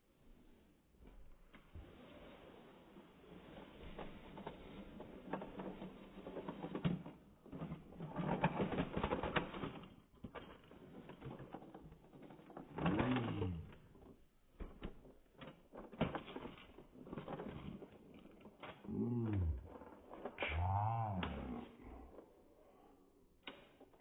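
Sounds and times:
plastic toys rattling: 0:03.9 - 0:22.2.

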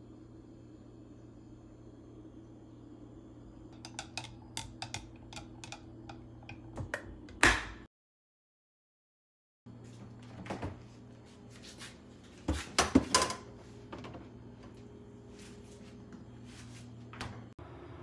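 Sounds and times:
steady low hum: 0:00.0 - 0:07.9.

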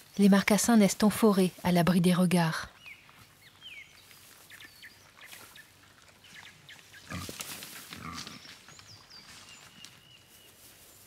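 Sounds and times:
small birds chirping: 0:00.0 - 0:11.0
wild boar grunting: 0:06.9 - 0:08.6.

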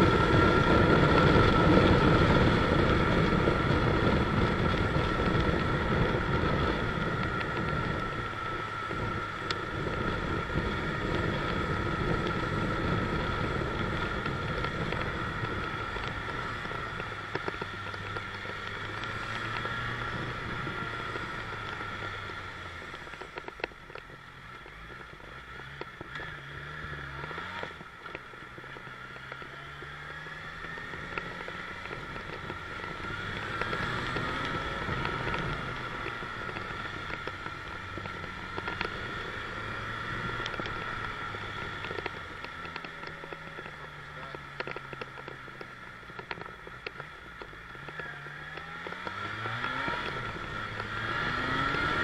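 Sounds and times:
wind rush on microphone: 0:00.0 - 0:23.7
motorcycle engine running: 0:00.0 - 0:52.0.

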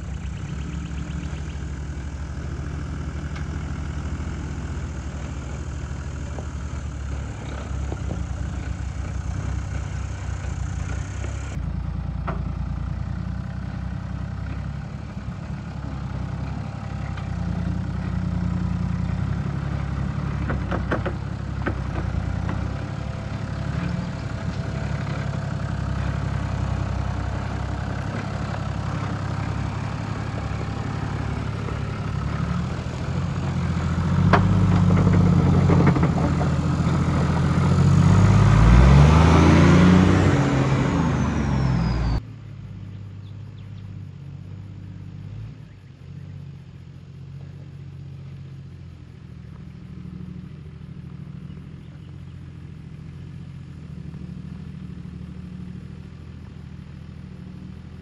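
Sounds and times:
engine running at low revs: 0:00.0 - 0:58.0.

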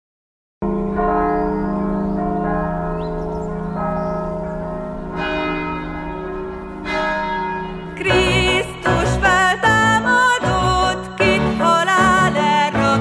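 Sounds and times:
church bells ringing: 0:00.6 - 0:12.9
religious music: 0:00.7 - 0:13.0.

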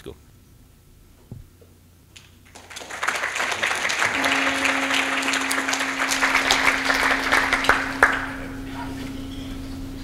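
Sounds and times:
audience applause: 0:02.5 - 0:09.0
steady low tone: 0:03.7 - 0:10.0.

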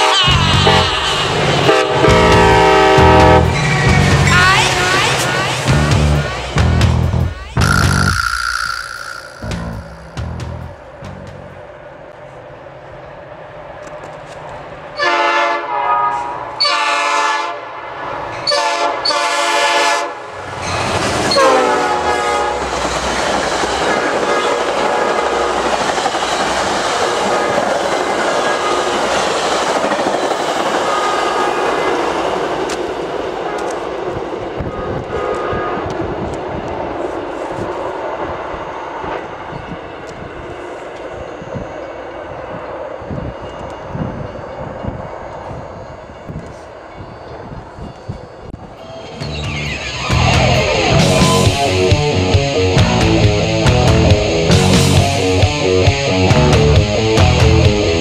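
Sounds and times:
train air horn blasts: 0:00.0 - 0:03.6, 0:07.6 - 0:10.4, 0:15.0 - 0:17.7
train rushing by: 0:00.0 - 0:15.1, 0:16.1 - 0:56.2.

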